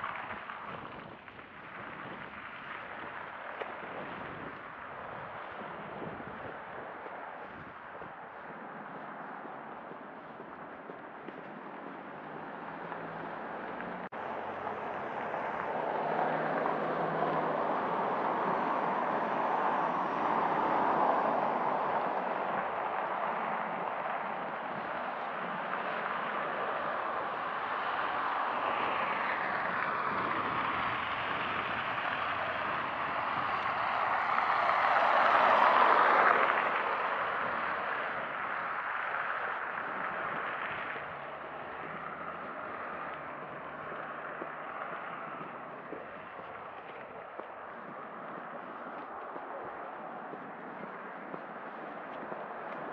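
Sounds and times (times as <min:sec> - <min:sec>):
van driving past on wet road: 0:11.5 - 0:52.9.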